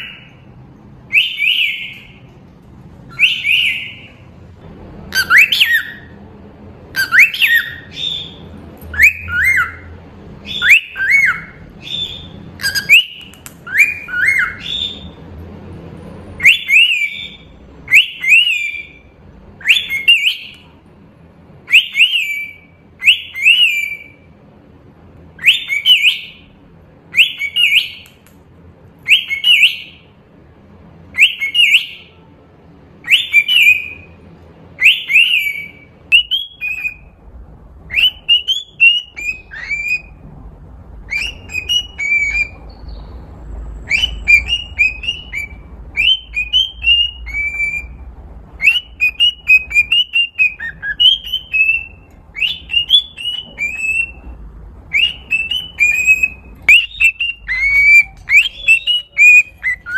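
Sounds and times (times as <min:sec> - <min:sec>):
cockatiel whistling: 0:00.0 - 0:00.4, 0:01.1 - 0:02.2, 0:03.1 - 0:04.2, 0:05.1 - 0:06.2, 0:06.9 - 0:15.2, 0:16.4 - 0:20.7, 0:21.7 - 0:24.3, 0:25.4 - 0:26.5, 0:27.1 - 0:28.2, 0:29.0 - 0:30.0, 0:31.1 - 0:32.2, 0:33.0 - 0:34.1, 0:34.8 - 0:37.1, 0:37.9 - 0:40.2, 0:41.1 - 0:43.0, 0:43.8 - 0:48.0, 0:48.6 - 0:54.3, 0:54.9 - 0:59.9.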